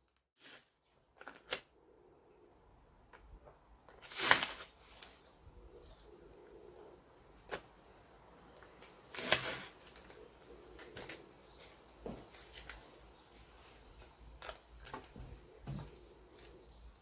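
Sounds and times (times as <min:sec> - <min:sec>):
paper and tape rustling: 0:03.4 - 0:05.4, 0:08.6 - 0:15.4.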